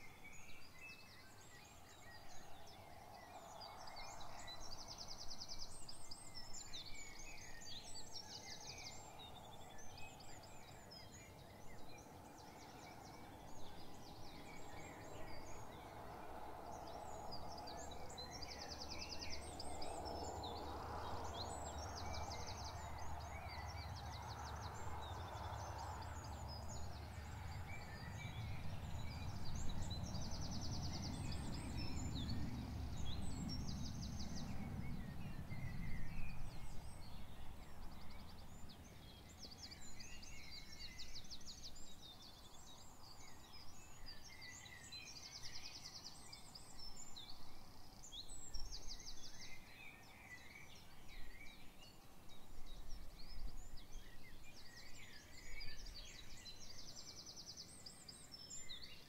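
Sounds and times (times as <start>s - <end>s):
songbirds chirping and trilling: 0.0s - 59.0s
low rumbling background: 21.3s - 38.8s.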